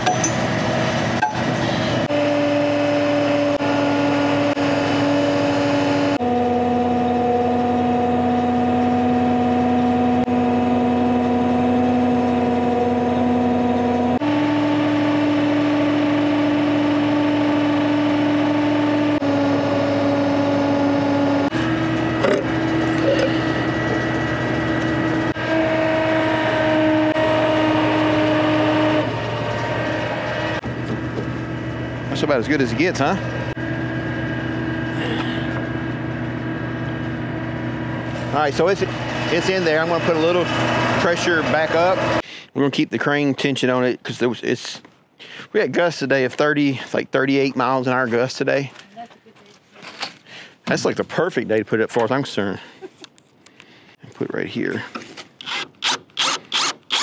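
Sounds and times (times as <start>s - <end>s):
truck engine humming: 0.0s - 42.2s.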